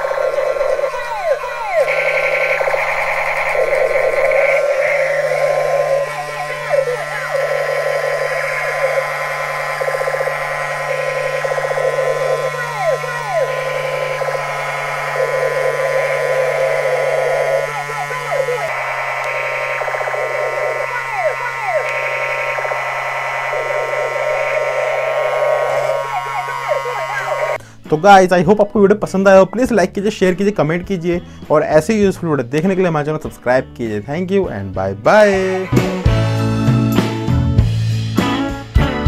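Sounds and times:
steady low hum: 0:00.0 - 0:27.6
toy gun machine-gun sound effect: 0:00.0 - 0:27.6.

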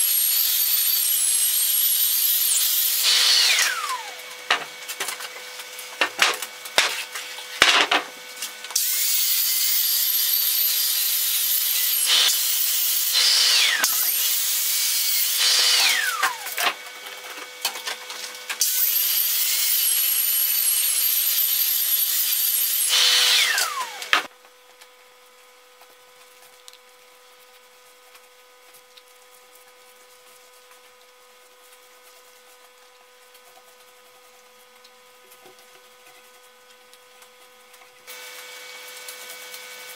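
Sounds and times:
power tool motor whining: 0:00.0 - 0:07.0, 0:07.6 - 0:17.6, 0:18.3 - 0:24.3.

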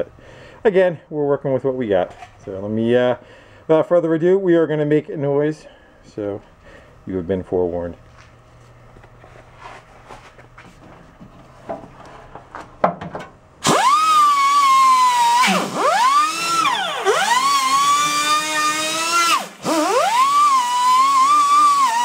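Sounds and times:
wire-wheel grinder whining: 0:13.6 - 0:22.0.

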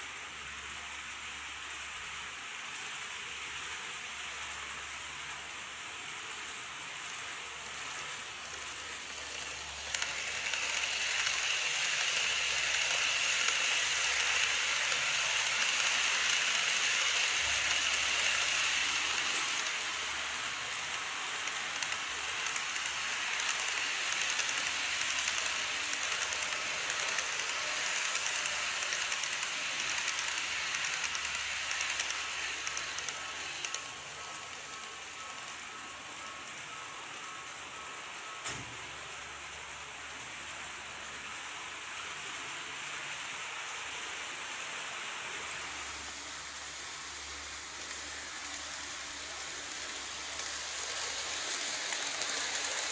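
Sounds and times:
model train wheels rattling: 0:03.8 - 0:37.4, 0:45.2 - 0:52.9
thin motor whine: 0:07.0 - 0:40.2, 0:43.1 - 0:52.9.

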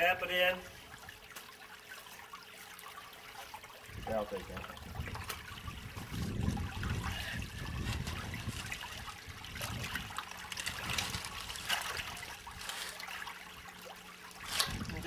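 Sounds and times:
creek water trickling: 0:00.0 - 0:15.0
hands splashing in water: 0:07.9 - 0:13.5.

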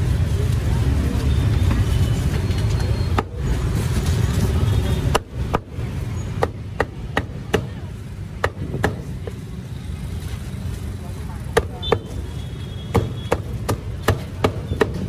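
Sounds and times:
cleaver chopping on chopping block: 0:12.9 - 0:15.0.

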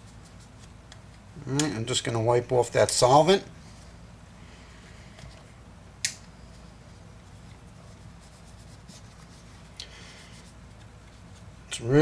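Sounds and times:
cloth rubbing on pistol frame: 0:07.0 - 0:11.6.

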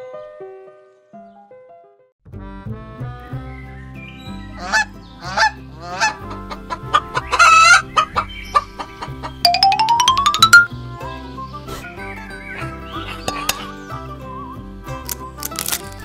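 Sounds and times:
light background music: 0:04.2 - 0:16.0
farmyard bird calls: 0:04.5 - 0:09.4.

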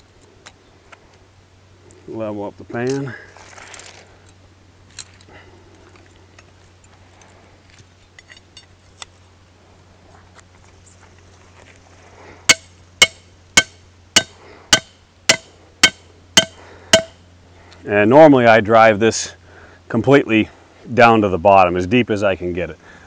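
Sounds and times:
faint metallic clinks: 0:02.8 - 0:08.8
rustling: 0:02.8 - 0:12.9
hammer striking steel stake: 0:12.5 - 0:17.2.

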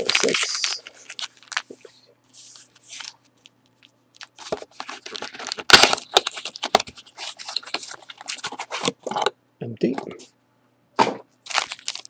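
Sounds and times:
foil packs rustling: 0:00.0 - 0:01.9, 0:04.2 - 0:09.0, 0:11.4 - 0:12.0.

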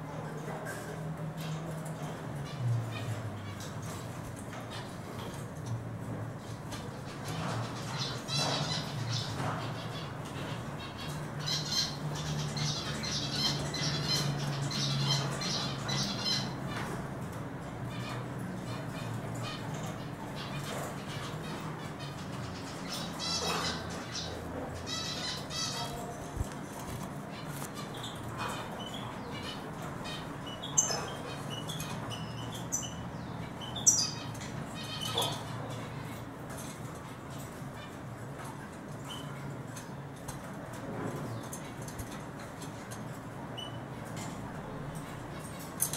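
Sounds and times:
birds chirping and twittering: 0:00.0 - 0:45.9
bird twittering song: 0:17.9 - 0:35.9.

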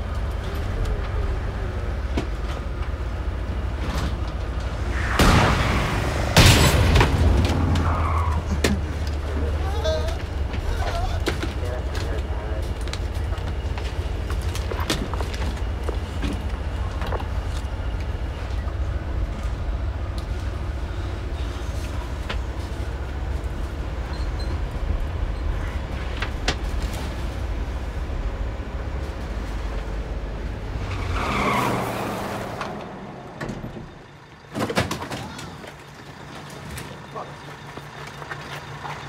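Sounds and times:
ambulance engine and road rumble: 0:00.0 - 0:39.0
brief rushing noise: 0:04.7 - 0:07.9.

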